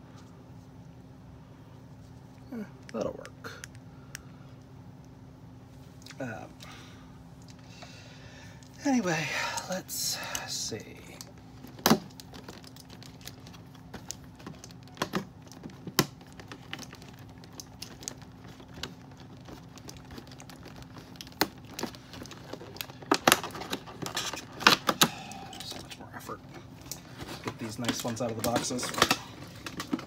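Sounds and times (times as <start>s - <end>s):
plastic packaging crinkling: 11.0s - 30.0s.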